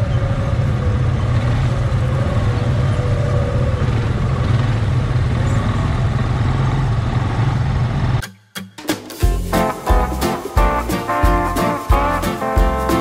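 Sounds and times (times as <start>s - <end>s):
atv engine running: 0.0s - 8.2s.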